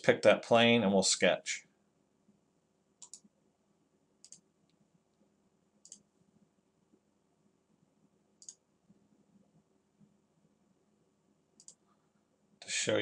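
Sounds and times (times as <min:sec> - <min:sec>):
mouse buttons clicking: 0:03.0 - 0:03.3, 0:04.2 - 0:04.4, 0:05.8 - 0:06.1, 0:08.4 - 0:08.6, 0:11.6 - 0:11.8.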